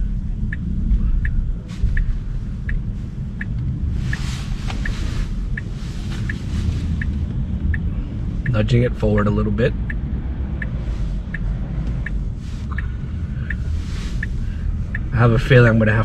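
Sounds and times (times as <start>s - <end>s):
city traffic rumble: 0.0s - 16.0s
rush of street noise: 0.0s - 16.0s
turn signal ticking: 0.0s - 16.0s.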